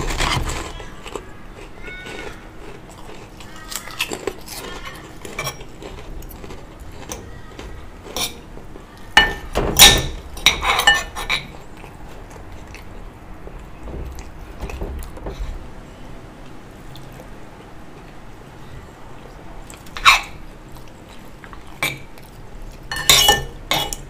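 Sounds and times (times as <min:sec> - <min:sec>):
cutlery clinking on ceramic bowls: 0:09.2 - 0:11.6, 0:22.9 - 0:24.0.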